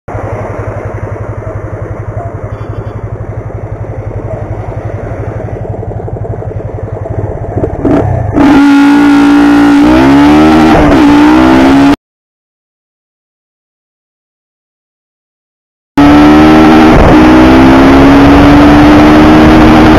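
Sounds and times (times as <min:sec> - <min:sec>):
motorcycle engine accelerating: 0:00.1 - 0:12.0, 0:16.0 - 0:19.9.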